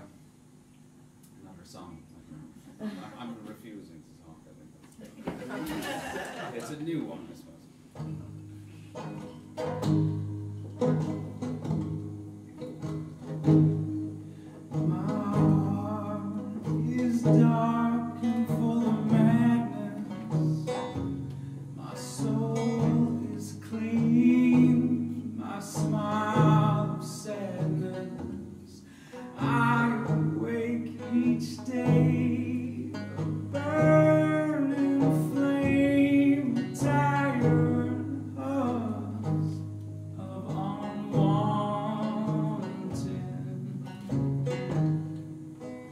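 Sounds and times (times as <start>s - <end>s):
banjo picking: 7.6s - 45.9s
man singing: 14.7s - 21.0s, 21.8s - 44.2s.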